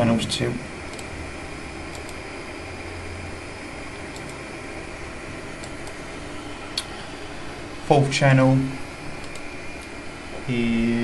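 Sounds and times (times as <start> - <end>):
room hiss with low hum: 0.0 - 11.0
computer mouse clicks: 0.9 - 1.1, 1.9 - 2.2, 4.1 - 4.4, 5.6 - 6.0, 9.2 - 9.9.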